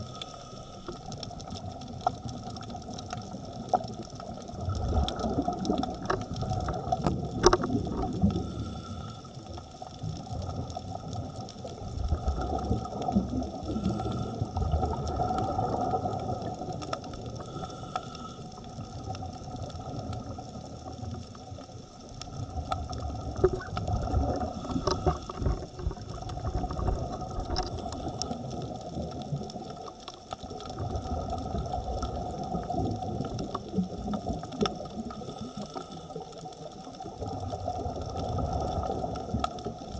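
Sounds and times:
underwater engine-like drone: 0.0 - 39.9
low rushing water: 22.2 - 35.9.

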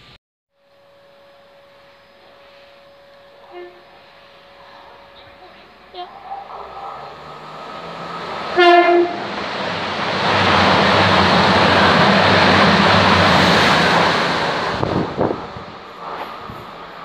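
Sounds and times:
train horn blast: 0.6 - 5.4, 6.2 - 9.4
low diesel engine drone: 0.6 - 14.2
train rushing past: 0.7 - 17.0.

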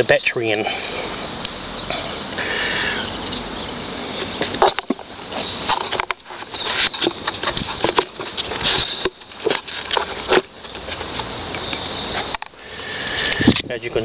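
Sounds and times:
hands handling plastic parts: 4.4 - 13.6.

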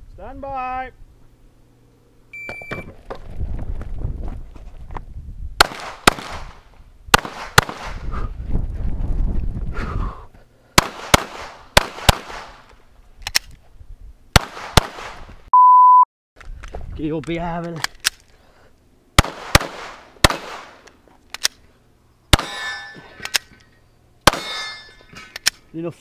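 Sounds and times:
short steady beep: 2.3 - 2.9, 15.5 - 16.1
pistol shots: 5.6 - 8.0, 10.8 - 12.6, 14.4 - 15.3, 19.2 - 20.8, 22.3 - 22.6, 24.2 - 24.6.

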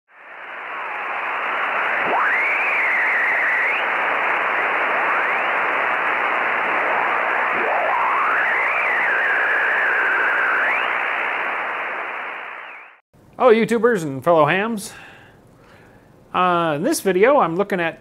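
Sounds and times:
gliding radio whistle: 0.1 - 13.0
radio static hiss: 0.1 - 13.0.

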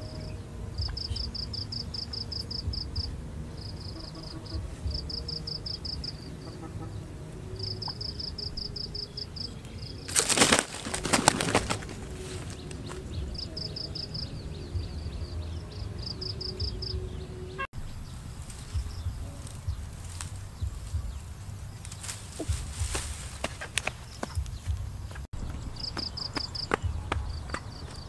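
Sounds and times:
high pulsing insect trill: 0.0 - 6.8, 7.4 - 17.7
large bird wings flapping: 10.1 - 13.5.

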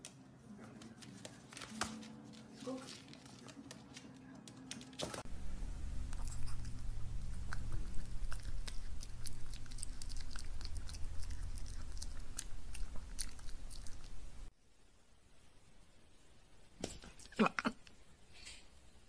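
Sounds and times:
low steady hum: 0.0 - 19.0
dog chewing and smacking: 6.1 - 14.5.

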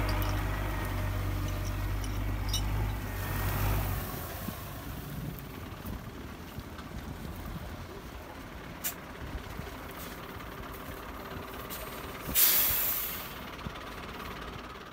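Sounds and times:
tractor diesel engine running: 0.0 - 14.9
air brake hiss: 11.7 - 13.4.

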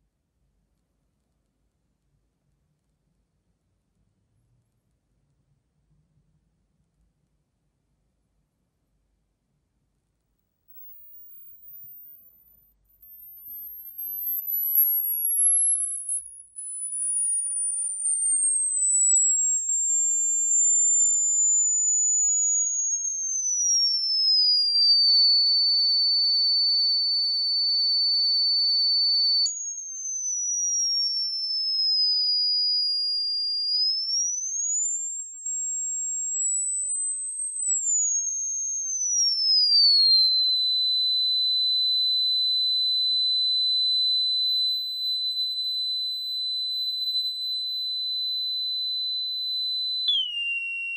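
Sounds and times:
high-pitched gliding test tone: 10.7 - 32.3.

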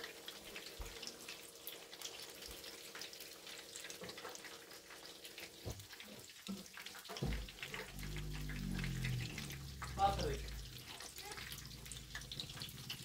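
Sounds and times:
oil sizzling and crackling: 0.0 - 13.0.

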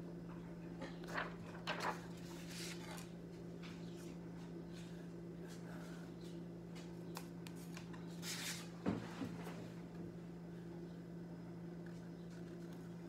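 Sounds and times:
steady low hum: 0.0 - 13.0
paper rustling on a table: 0.9 - 4.0, 7.2 - 8.7.

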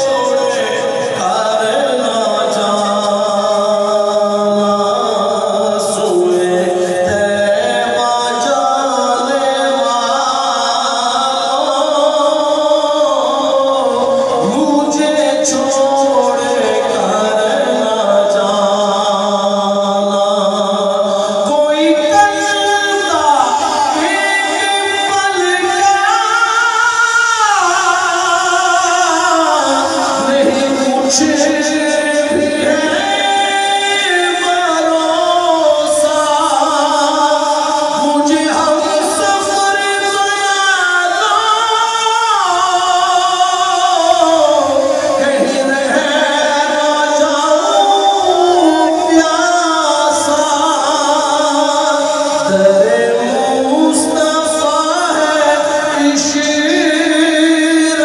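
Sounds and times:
man singing unaccompanied: 0.0 - 58.0.

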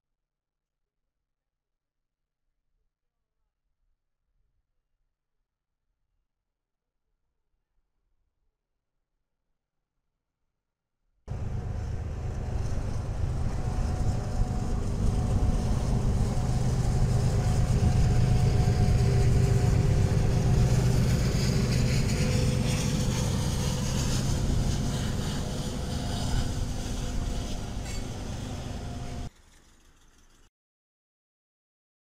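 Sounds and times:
vehicle passing by: 11.3 - 29.3.

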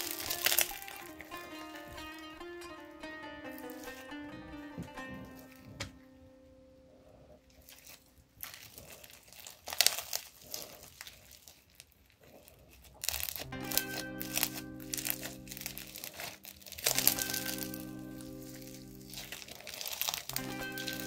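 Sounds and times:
crunchy slime crackling: 0.0 - 2.2, 3.4 - 4.0, 7.4 - 21.0
music with sustained notes: 0.0 - 7.3, 13.3 - 21.0.

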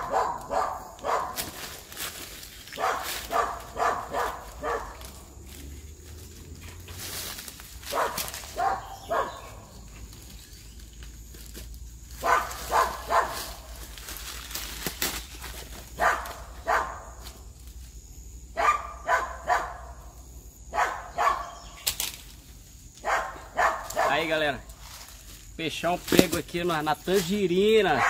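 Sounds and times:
dog barking: 0.0 - 1.4, 2.8 - 5.0, 7.9 - 9.6, 12.2 - 13.5, 16.0 - 17.1, 18.6 - 20.0, 20.7 - 21.6, 23.0 - 24.3.

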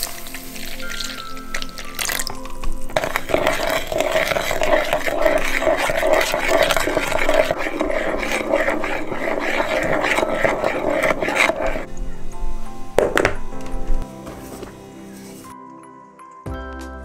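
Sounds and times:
spoon scraping plastic bowl: 3.0 - 11.9.

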